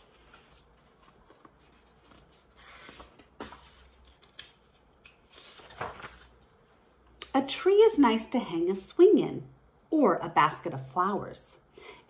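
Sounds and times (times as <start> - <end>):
paper page rustling: 0.0 - 7.0.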